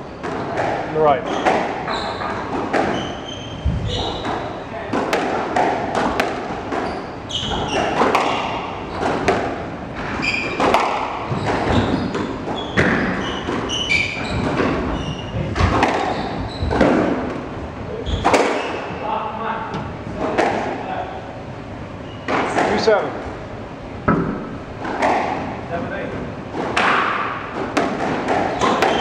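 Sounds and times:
squash ball cracking off rackets: 0.2s - 3.2s, 4.2s - 14.9s, 15.6s - 17.5s, 18.2s - 18.9s, 24.0s - 25.6s, 26.5s - 29.0s
sneakers squeaking on wooden floor: 1.2s - 4.8s, 6.6s - 9.3s, 10.0s - 20.3s, 21.9s - 22.6s, 28.3s - 29.0s.

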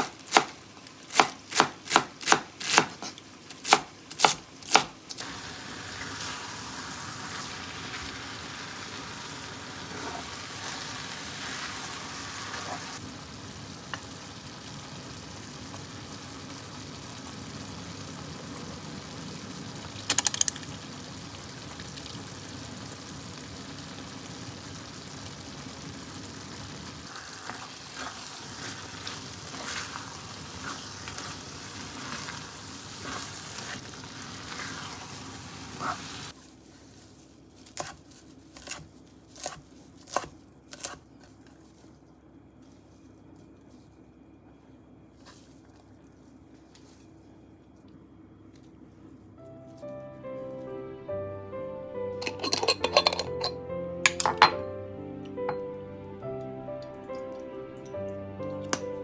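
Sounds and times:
meat and greens sizzling in a pan: 5.2s - 37.0s
spatula scraping: 9.8s - 13.0s, 27.2s - 41.9s.

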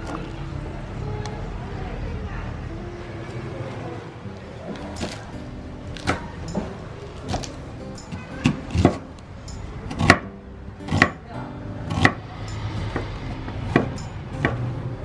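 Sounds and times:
knife chopping on wooden board: 7.2s - 9.1s, 9.9s - 10.3s, 10.9s - 11.2s, 11.9s - 12.2s, 12.9s - 14.6s.

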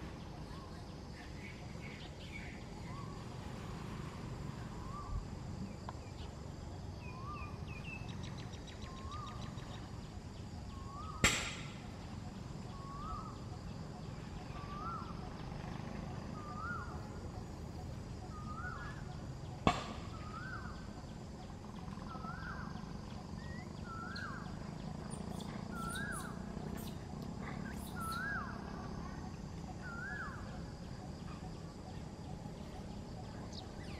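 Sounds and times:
outdoor background noise: 0.0s - 33.9s.

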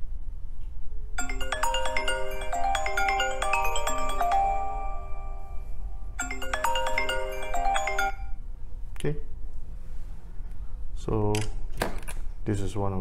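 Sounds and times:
phone ringtone chiming melody: 1.2s - 8.4s.

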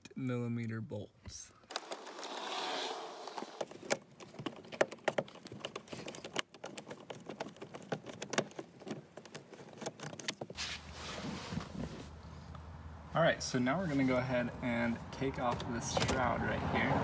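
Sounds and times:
socket metal rattle: 3.4s - 10.6s.

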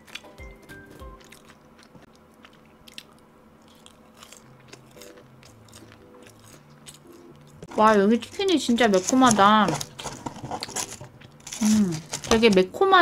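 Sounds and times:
person chewing crispy chicken: 0.0s - 7.7s, 9.8s - 12.3s.

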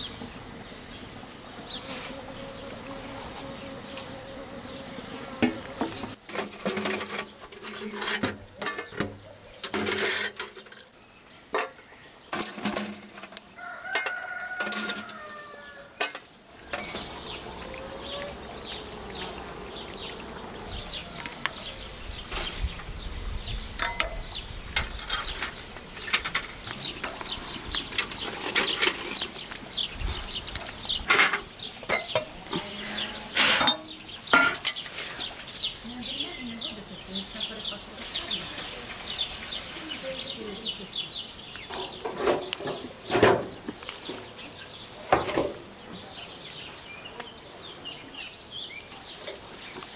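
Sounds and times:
chickens calling: 13.4s - 22.6s.

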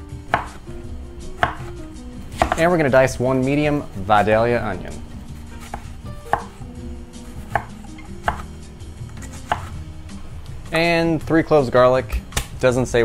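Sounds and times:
knife striking cutting board: 0.3s - 0.6s, 1.4s - 1.7s, 2.3s - 2.7s, 5.6s - 6.6s, 7.3s - 8.5s, 9.2s - 9.7s.

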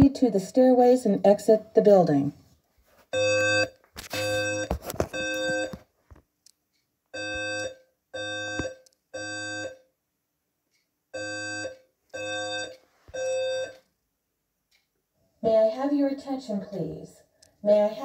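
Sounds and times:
fire alarm beeps: 3.2s - 5.8s, 7.1s - 9.9s, 11.1s - 13.8s.

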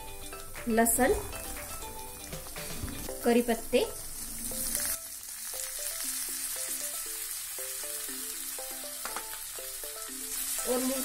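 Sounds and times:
simple background melody: 0.0s - 11.0s
leaves sizzling in hot oil: 0.1s - 11.0s.

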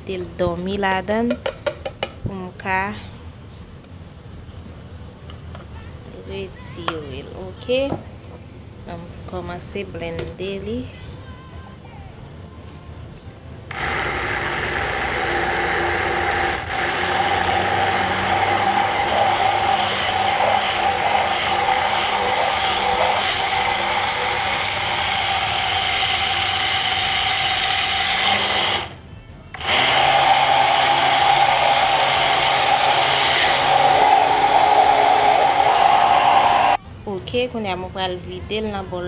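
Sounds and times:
immersion blender whining: 13.7s - 36.8s.

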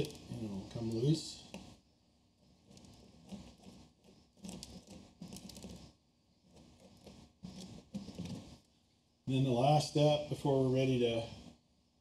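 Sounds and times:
fingertips scratching rock: 2.5s - 8.6s.

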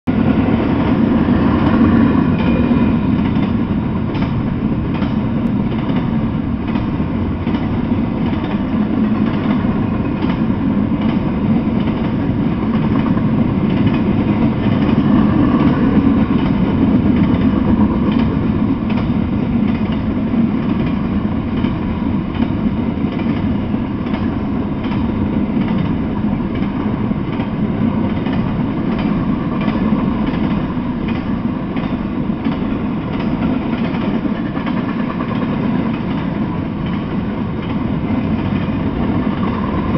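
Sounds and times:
freight train wheels rumbling on rail: 0.0s - 39.9s.

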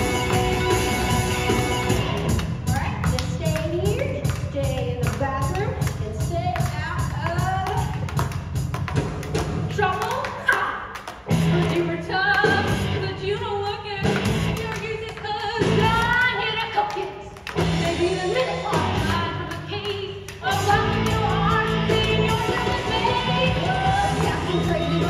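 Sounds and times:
amplified band: 0.0s - 4.4s.

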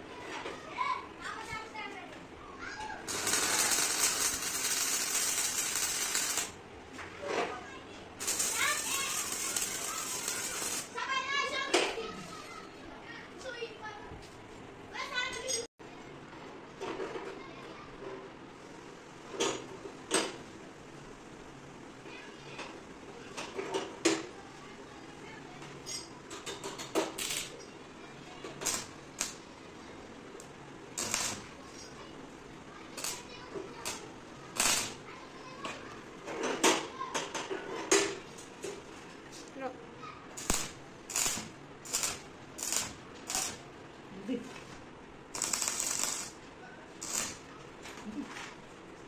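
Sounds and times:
arc welder bursts: 3.0s - 6.6s, 8.2s - 11.0s, 28.6s - 29.4s, 31.0s - 31.6s, 33.0s - 35.1s, 40.3s - 43.7s, 45.3s - 46.4s, 47.0s - 47.5s.

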